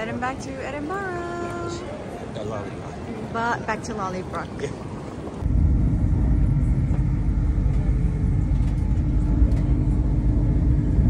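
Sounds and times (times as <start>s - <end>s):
train rumble inside carriage: 5.4s - 11.0s.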